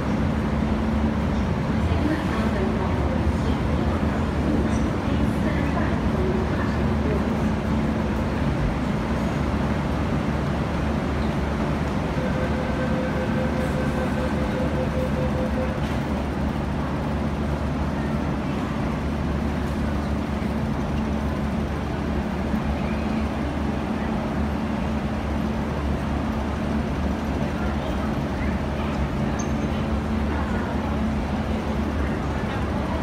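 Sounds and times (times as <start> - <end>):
train rumble: 0.0 - 33.0
pulsing warning beep: 12.2 - 16.0.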